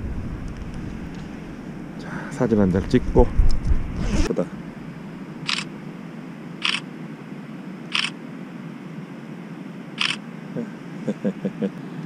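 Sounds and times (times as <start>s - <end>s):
phone camera shutter: 5.5s - 5.7s, 6.6s - 6.9s, 7.9s - 8.2s, 10.0s - 10.2s.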